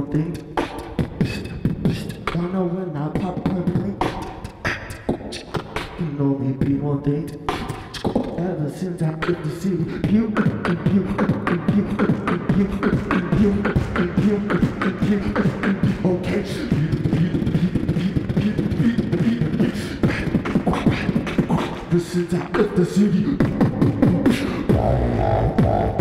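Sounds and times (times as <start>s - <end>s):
beatboxing into microphone: 0.0s - 26.0s.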